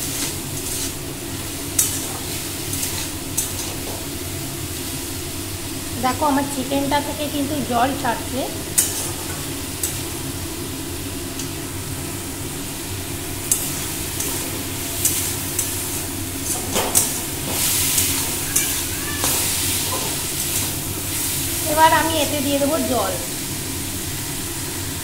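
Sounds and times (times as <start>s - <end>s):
food sizzling in a wok: 0.0s - 25.0s
spatula scraping and tapping pan: 1.7s - 4.1s, 8.7s - 10.0s, 13.5s - 15.8s, 16.4s - 20.8s.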